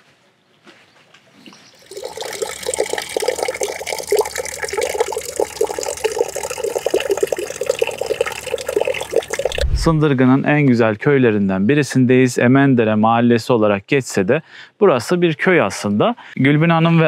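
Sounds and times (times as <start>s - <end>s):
running water splashing: 1.8s - 10.0s.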